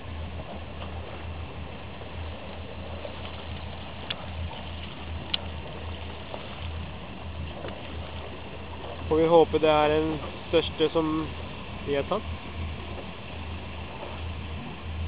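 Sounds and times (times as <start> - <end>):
boat low rumble: 0.0 - 15.0
water and wind wash: 0.0 - 15.0
faint clicks: 4.0 - 4.2, 4.8 - 5.5.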